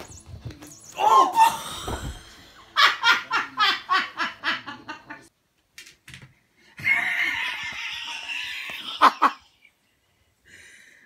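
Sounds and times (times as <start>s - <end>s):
person laughing: 6.8s - 9.6s.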